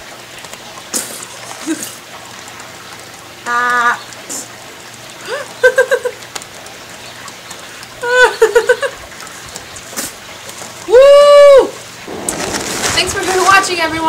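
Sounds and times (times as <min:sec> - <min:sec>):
woman giggling laughter: 0:05.3 - 0:06.2, 0:08.0 - 0:09.0.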